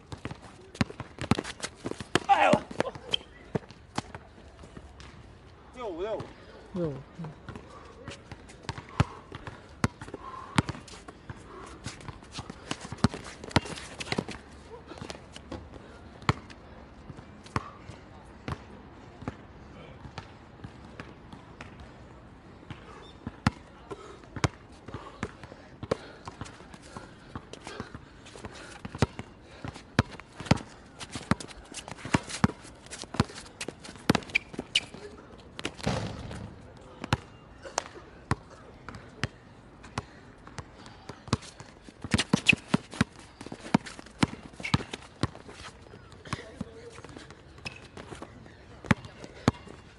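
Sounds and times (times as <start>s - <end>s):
basketball bouncing on hard court: 35.7s - 36.5s, 43.7s - 45.4s, 48.9s - 49.6s
basketball bouncing on court: 35.7s - 37.2s, 40.0s - 45.4s, 48.8s - 49.6s.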